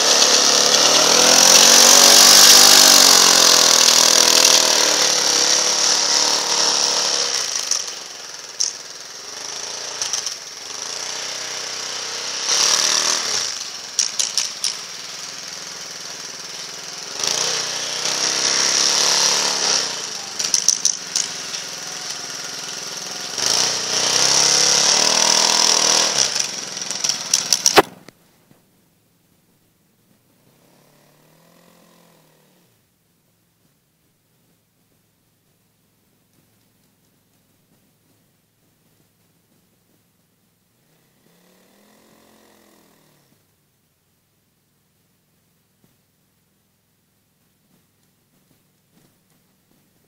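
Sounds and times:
snow motorcycle engine revving: 0:00.0 - 0:28.1, 0:30.4 - 0:32.8, 0:40.7 - 0:43.5.

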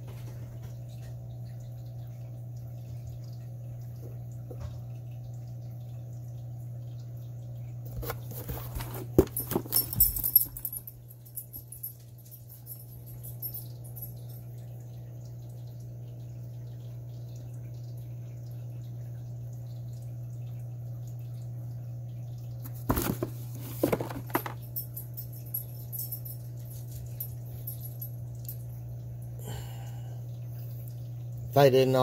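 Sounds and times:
steady low hum: 0:00.0 - 0:32.0
cardboard box rustling: 0:07.9 - 0:09.8, 0:22.7 - 0:24.6.

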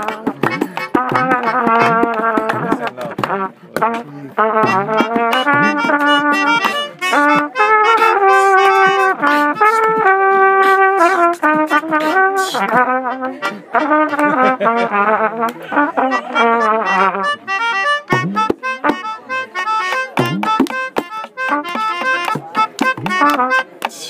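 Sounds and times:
people clapping: 0:00.0 - 0:07.3, 0:11.5 - 0:13.4, 0:14.1 - 0:14.6, 0:15.4 - 0:16.5, 0:19.8 - 0:24.0
hand drums: 0:00.0 - 0:10.5, 0:18.0 - 0:24.0
trumpet melody: 0:00.0 - 0:23.8.

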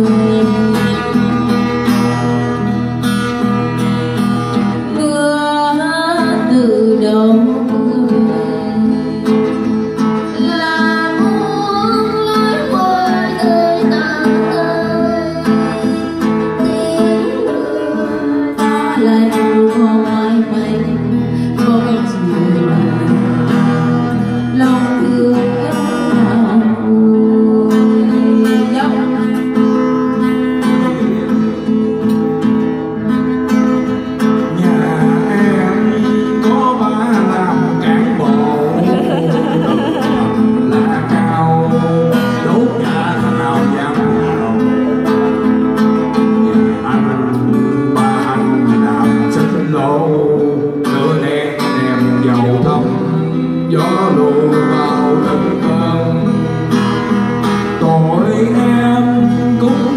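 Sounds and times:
woman singing into microphone: 0:00.0 - 0:02.8, 0:04.8 - 0:31.3, 0:34.5 - 0:44.4
strummed acoustic guitar: 0:00.0 - 0:59.9.

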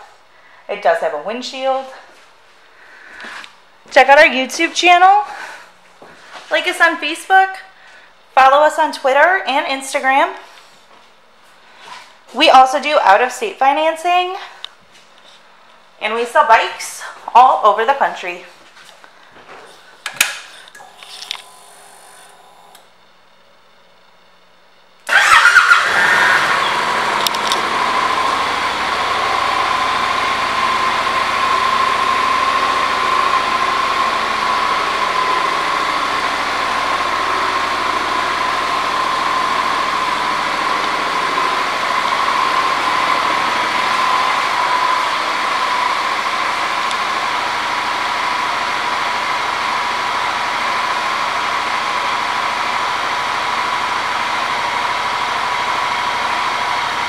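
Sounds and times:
motorcycle engine starting and idling: 0:25.0 - 0:57.0.

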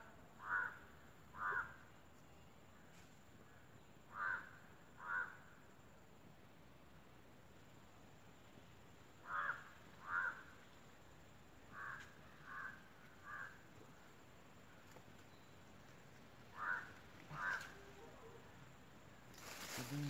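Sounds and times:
crow cawing: 0:00.4 - 0:00.8, 0:01.4 - 0:01.8, 0:04.1 - 0:05.4, 0:09.2 - 0:10.5, 0:11.7 - 0:13.6, 0:16.5 - 0:17.9.

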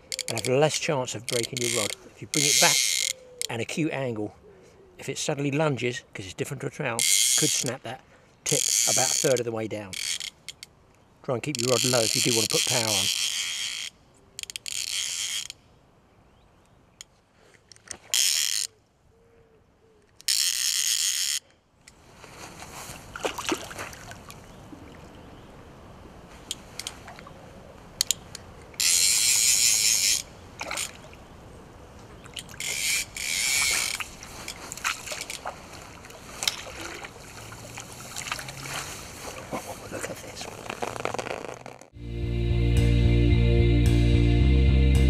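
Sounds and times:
fishing reel ratchet buzzing: 0:01.3 - 0:03.2, 0:07.0 - 0:07.7, 0:08.5 - 0:09.4, 0:10.0 - 0:10.7, 0:11.6 - 0:15.6, 0:18.2 - 0:18.7, 0:20.2 - 0:21.4, 0:28.8 - 0:30.3, 0:32.6 - 0:34.0.

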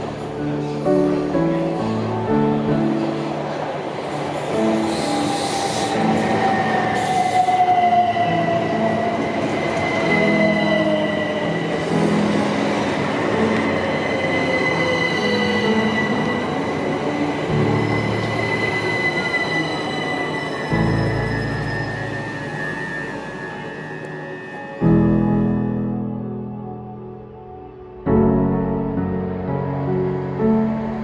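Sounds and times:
high-pitched brake squeal: 0:04.6 - 0:12.2, 0:13.4 - 0:25.0.

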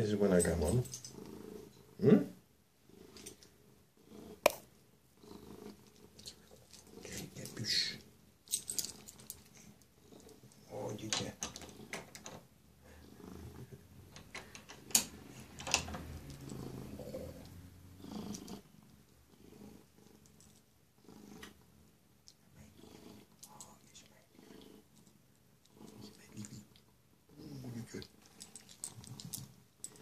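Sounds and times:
cat purring: 0:00.0 - 0:12.2, 0:12.8 - 0:30.0.

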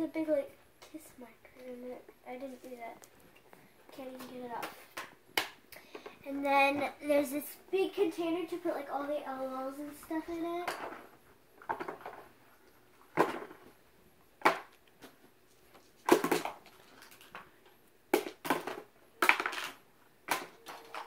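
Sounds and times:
plastic toys clattering into tub: 0:16.0 - 0:17.4, 0:18.2 - 0:21.0.

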